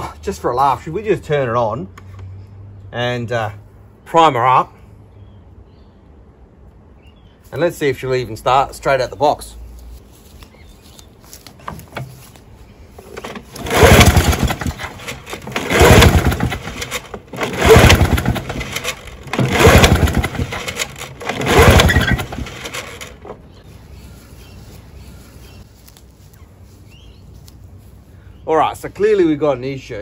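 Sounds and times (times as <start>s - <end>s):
lawnmower engine pull-start: 11.6s - 23.6s.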